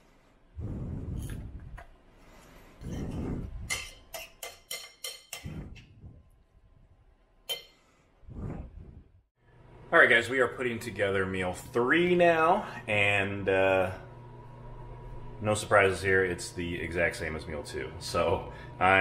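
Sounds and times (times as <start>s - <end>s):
metal spoon clinking on ceramic bowl: 3.7s - 5.5s, 7.5s - 7.8s.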